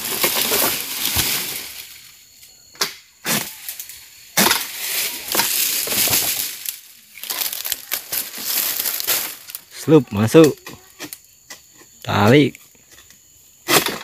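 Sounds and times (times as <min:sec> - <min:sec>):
palm fronds rustling: 0:00.0 - 0:02.6, 0:03.3 - 0:10.6.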